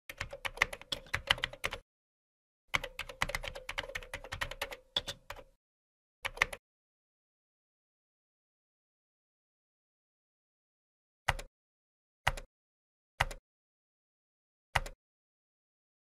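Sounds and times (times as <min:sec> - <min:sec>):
typing on computer keyboard: 0:00.1 - 0:01.8, 0:02.7 - 0:05.6, 0:06.2 - 0:06.6, 0:14.8 - 0:15.0.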